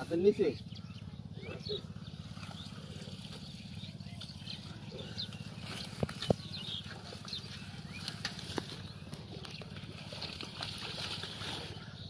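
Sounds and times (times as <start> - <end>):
wet plants rustling and tearing: 4.2 - 11.9.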